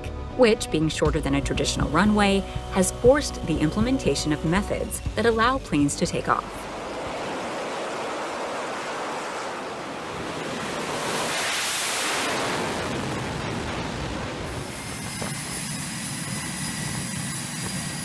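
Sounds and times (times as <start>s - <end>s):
thin high whine: 1.6s - 7.2s
jet engine roar: 1.8s - 18.0s.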